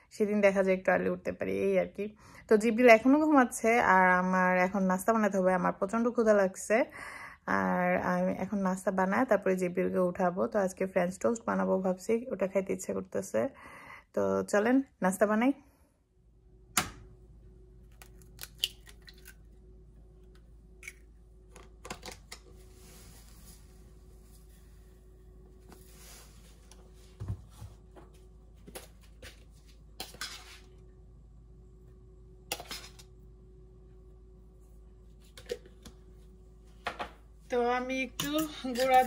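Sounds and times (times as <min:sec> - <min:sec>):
faint steady hum: 0:00.0 - 0:39.0
utensils and dishes clinking: 0:38.2 - 0:39.0.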